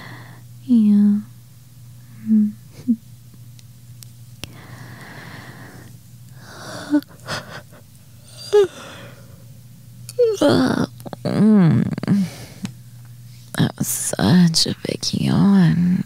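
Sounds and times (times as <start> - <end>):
woman murmuring hums: 2.1 - 3.1, 6.5 - 9.0, 10.1 - 12.6
woman breathing slowly: 4.5 - 9.4
woman sighing: 8.3 - 9.2.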